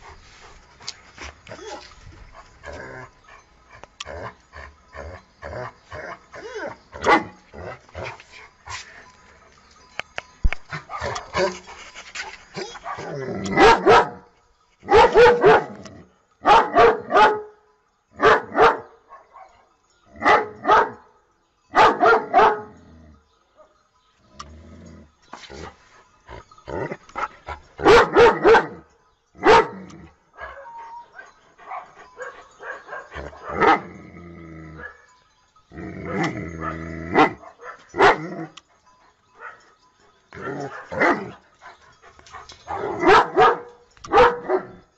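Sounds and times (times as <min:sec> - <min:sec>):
dogs barking: 0:06.1 - 0:08.6, 0:10.6 - 0:11.7, 0:12.5 - 0:17.6, 0:18.2 - 0:21.0, 0:21.7 - 0:22.8, 0:26.7 - 0:29.8, 0:30.4 - 0:34.0, 0:36.0 - 0:38.6, 0:39.2 - 0:44.9.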